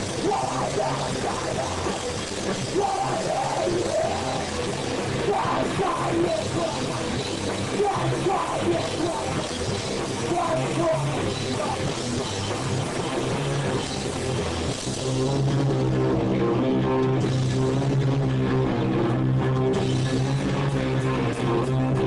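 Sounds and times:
drum kit with cymbals: 0.0s - 15.7s
electric guitars: 0.0s - 22.0s.

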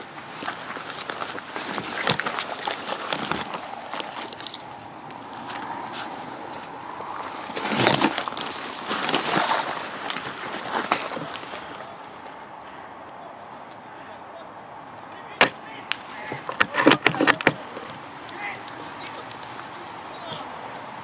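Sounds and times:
footsteps crunching on gravel: 0.0s - 12.5s, 17.6s - 21.0s
suit rustling through dry brush: 0.0s - 12.6s, 17.6s - 21.0s.

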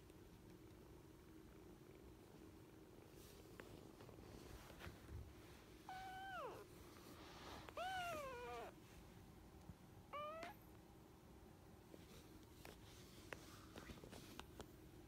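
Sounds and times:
kitten meowing: 5.9s - 6.7s, 7.7s - 8.8s, 10.1s - 10.6s.

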